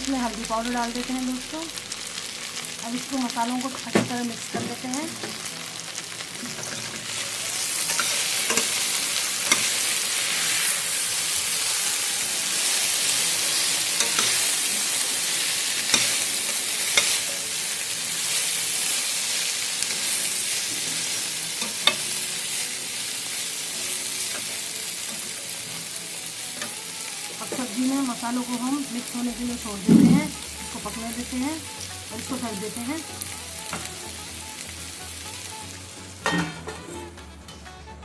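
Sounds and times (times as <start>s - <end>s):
vegetables sizzling in oil: 0.0s - 36.7s
metal spoon scraping pan: 7.8s - 10.5s, 14.0s - 14.5s.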